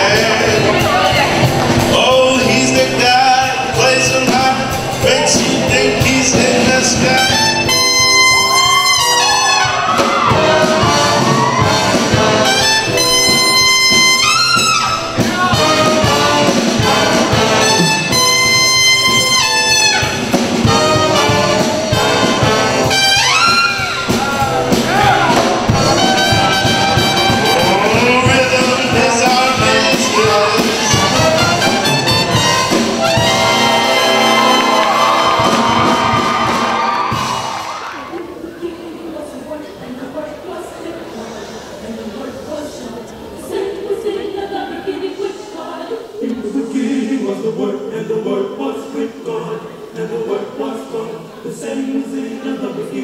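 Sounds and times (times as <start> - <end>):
jazz band playing: 0.0 - 38.8
trumpet solo: 2.4 - 38.0.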